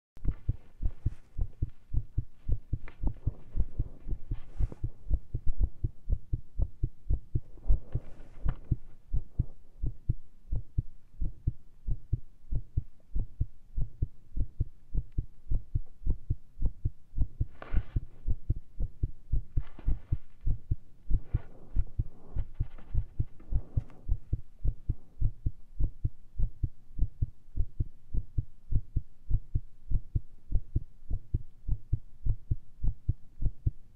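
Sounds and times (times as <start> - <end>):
rustling: 0.2 - 5.1, 7.5 - 9.5, 17.5 - 18.3, 19.5 - 24.2
heartbeat through stethoscope: 0.2 - 33.9.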